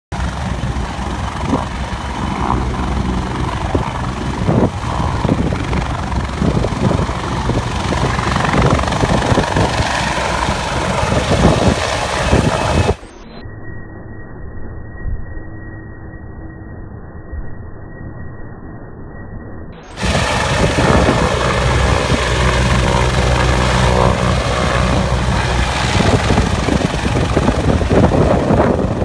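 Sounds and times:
helicopter rotor and turbine roar: 0.1 - 13.1, 19.9 - 29.0.

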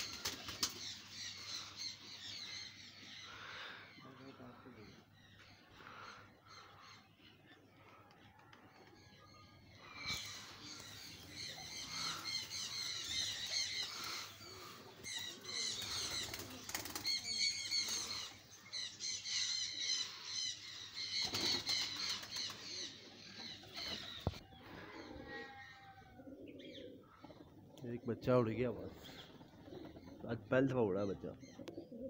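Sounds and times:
pigeon wings flapping: 0.0 - 0.8, 15.8 - 17.2
small birds chirping: 0.0 - 32.0.

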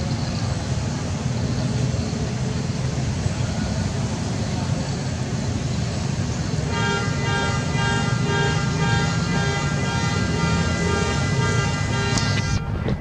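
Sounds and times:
traffic rumble: 0.0 - 13.0
vehicle horn honking: 6.6 - 12.7.

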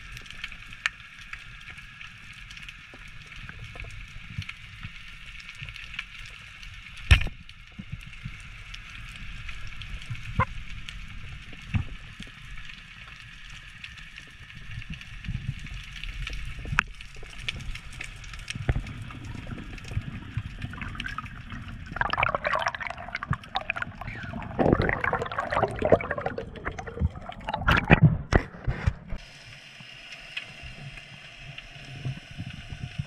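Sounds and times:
underwater rushing water: 14.3 - 33.0
water bubbling and gurgling: 14.6 - 29.2
underwater clicks: 16.2 - 29.2.

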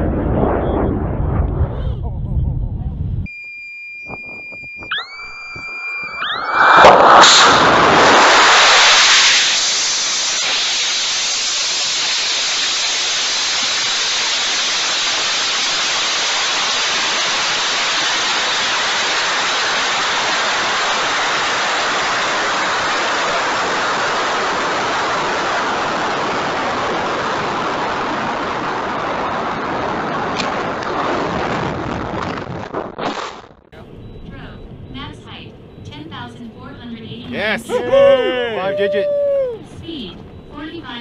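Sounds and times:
rocket motor burning loudly: 4.9 - 33.5.

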